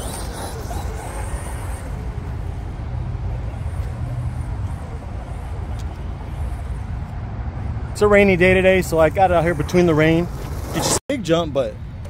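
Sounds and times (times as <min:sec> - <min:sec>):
toy truck motor and tyres: 0:00.0 - 0:07.2.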